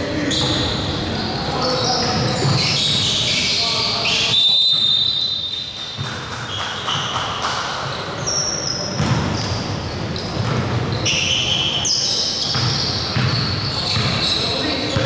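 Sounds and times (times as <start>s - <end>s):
players' voices: 0.0s - 5.2s, 7.4s - 15.0s
sneakers squeaking: 0.0s - 15.0s
basketball bouncing: 9.0s - 9.6s, 10.3s - 11.0s, 12.5s - 14.2s.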